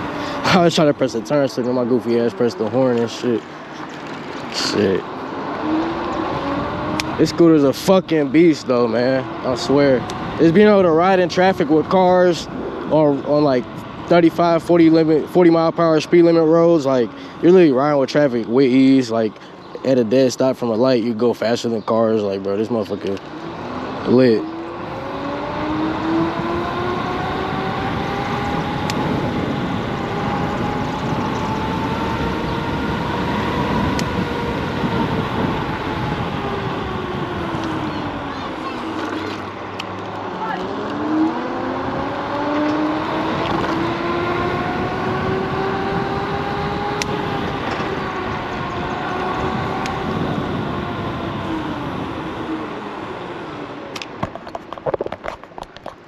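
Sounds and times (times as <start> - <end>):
wind and road noise: 0.0 - 56.0
electric motor whine: 23.2 - 53.8.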